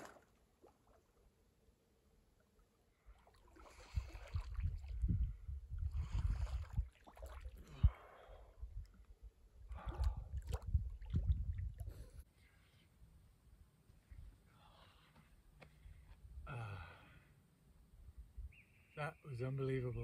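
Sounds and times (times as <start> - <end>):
person swimming and splashing: 0.0 - 1.0, 3.1 - 5.0, 5.9 - 7.7, 9.7 - 12.1
rumble on microphone: 3.7 - 12.2.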